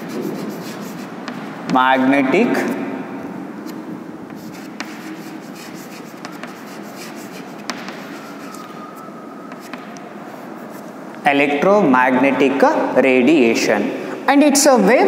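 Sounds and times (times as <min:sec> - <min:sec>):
chalk ticking on board: 0:00.0 - 0:01.4, 0:03.7 - 0:08.8, 0:09.5 - 0:10.1
chalk scratching on blackboard: 0:00.0 - 0:01.5, 0:03.6 - 0:11.0.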